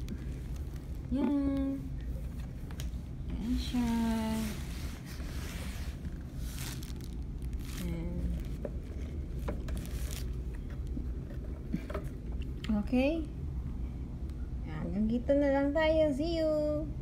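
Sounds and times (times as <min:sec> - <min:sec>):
plastic wrapping crinkling: 0:03.8 - 0:11.2.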